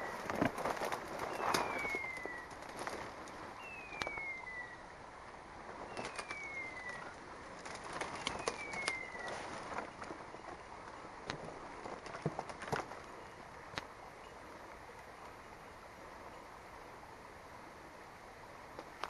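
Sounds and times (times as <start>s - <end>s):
twigs crackling underfoot: 0.0s - 4.8s, 5.6s - 13.9s.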